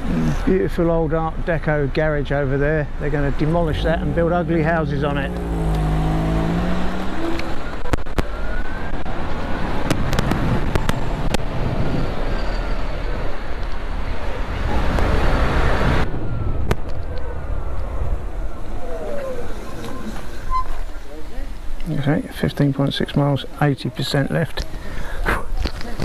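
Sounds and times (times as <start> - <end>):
tyre and road noise: 0.0 - 23.6, 24.2 - 26.0
wind rushing over microphone: 3.4 - 21.0
electric motor whine: 5.3 - 7.8.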